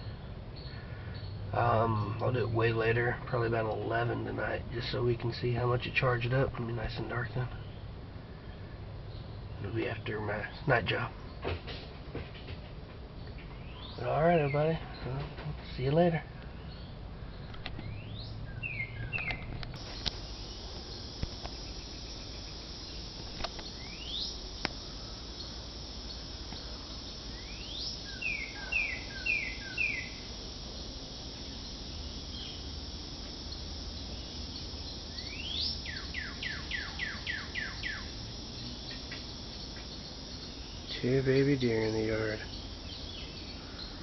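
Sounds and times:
steady outdoor hiss: 0.0 - 44.0
songbird calling: 13.2 - 44.0.

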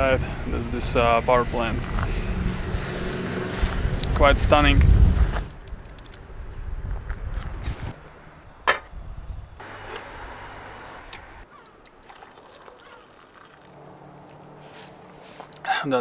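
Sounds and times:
wind rumble on microphone: 0.0 - 9.6.

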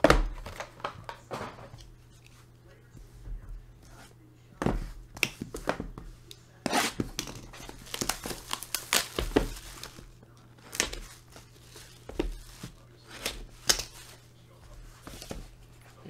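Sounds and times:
shrink wrap crinkling: 7.5 - 14.3.

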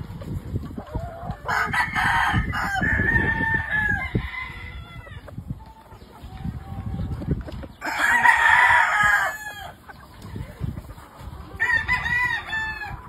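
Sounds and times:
rooster crowing: 1.5 - 5.0, 7.8 - 9.8.

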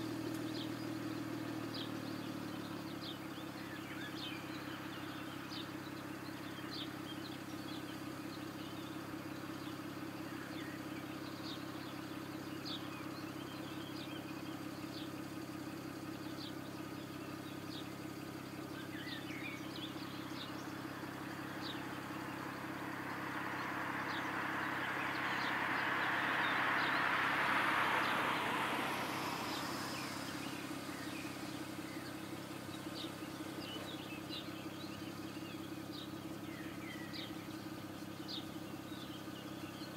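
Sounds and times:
birds chirping: 0.0 - 39.9
car engine idling: 0.0 - 39.9
broad rushing noise: 20.6 - 33.3.

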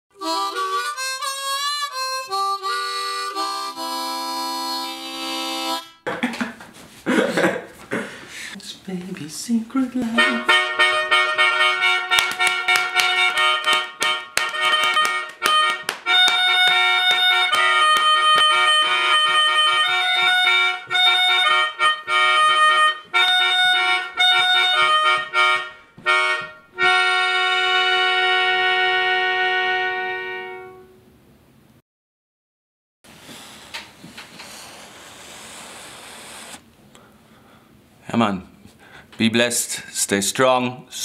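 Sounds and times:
melodica playing: 0.1 - 6.0, 10.1 - 31.0.

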